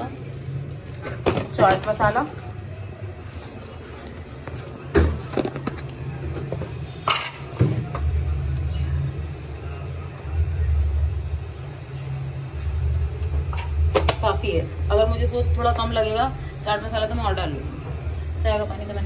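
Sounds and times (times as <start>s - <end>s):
utensils and containers clinking: 4.4s - 8.1s
low steady rumble: 8.0s - 19.0s.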